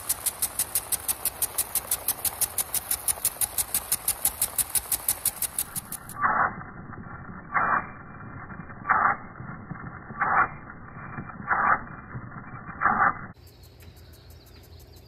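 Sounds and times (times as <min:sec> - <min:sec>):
water spray hissing: 0:00.0 - 0:06.3
impact sprinkler ticking: 0:00.0 - 0:06.4, 0:12.8 - 0:15.0.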